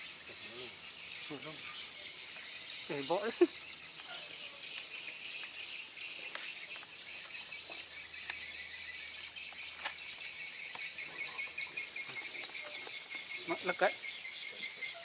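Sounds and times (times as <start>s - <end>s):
insects chirring: 0.0s - 15.0s
sharp clicks: 9.5s - 10.9s.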